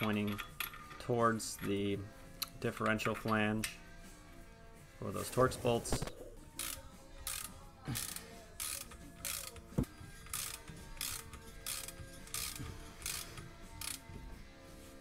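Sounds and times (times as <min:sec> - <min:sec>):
hand ratchet clicking: 0:00.0 - 0:00.9, 0:06.6 - 0:14.3.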